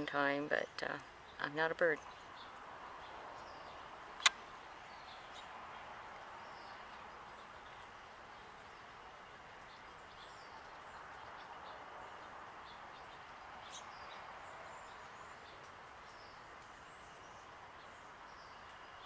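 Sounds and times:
outdoor background noise: 0.0s - 19.0s
sharp click: 4.2s - 4.4s.

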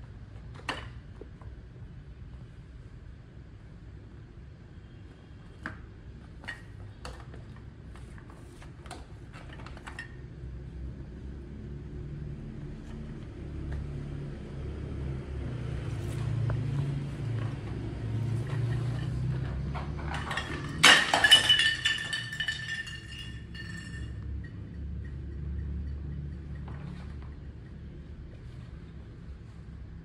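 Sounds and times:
low steady hum: 0.0s - 30.0s
hard object clinking: 20.1s - 26.2s.

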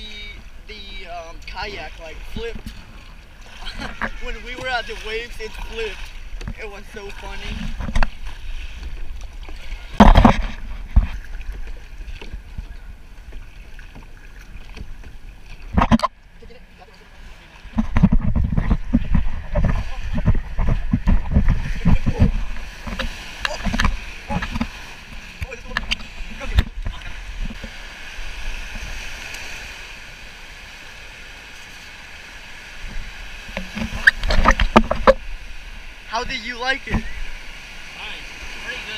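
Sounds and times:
wind rumbling on microphone: 0.0s - 16.7s, 17.5s - 38.9s
ocean surf: 0.0s - 38.9s
water lapping around kayak: 0.0s - 38.9s
life vest rustling and clicking: 33.5s - 35.2s.

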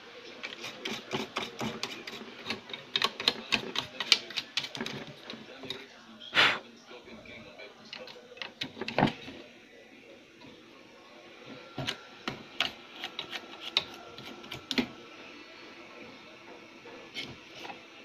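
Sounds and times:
small hand tools clicking and tapping: 0.6s - 5.8s
faint steady whine: 5.1s - 18.0s.

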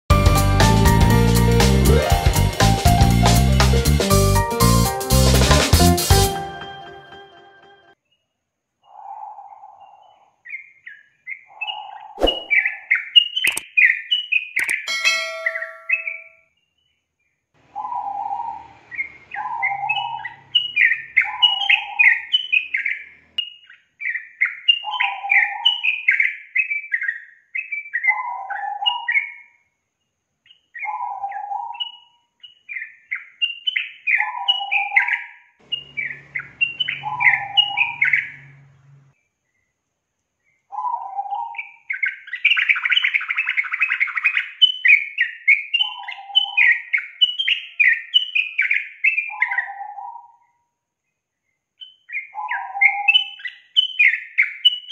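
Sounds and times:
bulbul chirping song: 8.8s - 16.9s, 17.7s - 29.5s, 30.5s - 39.6s, 40.5s - 50.5s, 51.8s - 54.9s
dense buzzing bird chatter: 35.6s - 39.7s.

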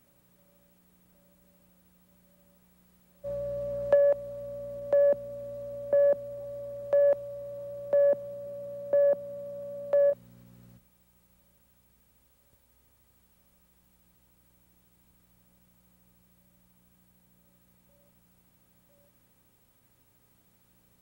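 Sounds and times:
steady electronic tone: 3.2s - 10.2s
low hum: 3.2s - 10.8s.

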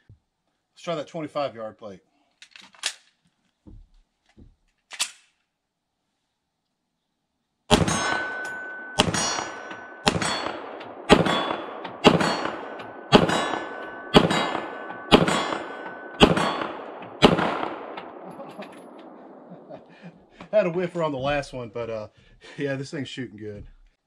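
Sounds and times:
bullet ringing steel plate: 7.7s - 19.5s
pistol shots: 7.7s - 19.8s.

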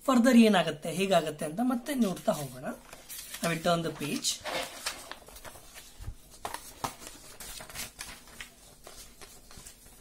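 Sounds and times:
paper rustling: 1.9s - 10.0s.

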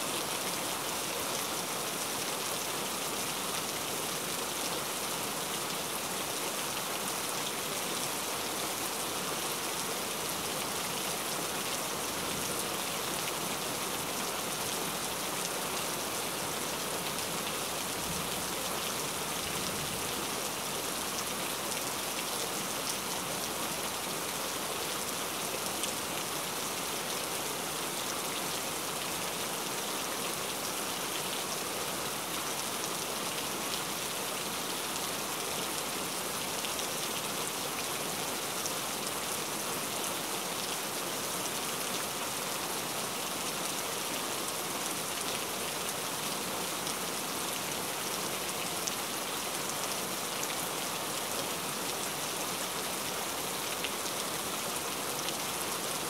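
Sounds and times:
heavy rain: 0.0s - 56.0s.

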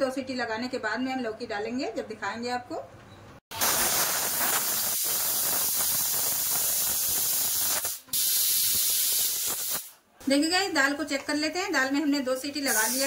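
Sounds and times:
pressure cooker steam hissing: 3.5s - 10.0s, 12.6s - 13.0s.

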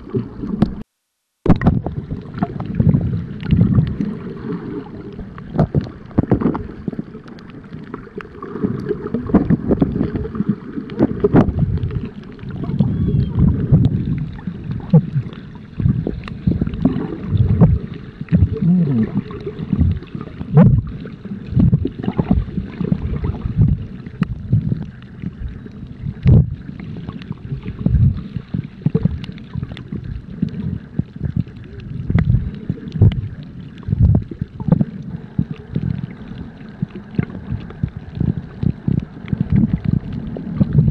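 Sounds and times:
muffled underwater water sloshing: 0.0s - 40.9s
faint clicks: 5.1s - 17.0s.

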